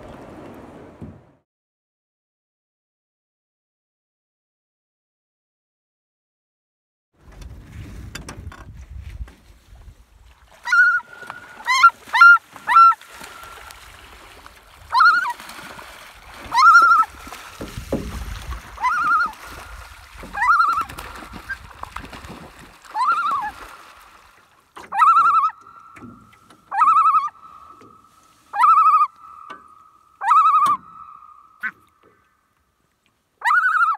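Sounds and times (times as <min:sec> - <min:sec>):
splashing across water: 0:00.0 - 0:01.4, 0:07.2 - 0:33.3
loon tremolo calls: 0:24.9 - 0:31.8.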